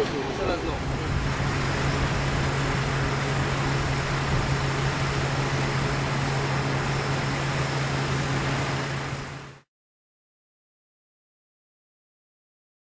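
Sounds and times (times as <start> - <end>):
diesel engine idling hum: 0.0 - 9.6
noisy rumble: 0.0 - 9.7.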